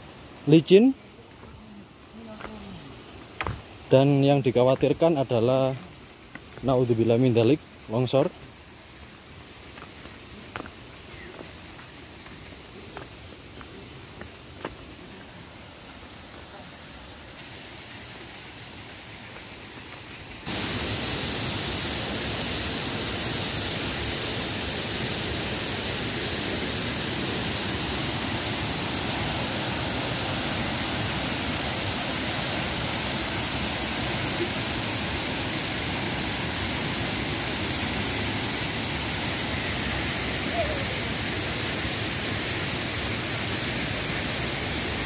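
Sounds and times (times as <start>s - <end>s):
waterfall rushing: 9.8s - 45.0s.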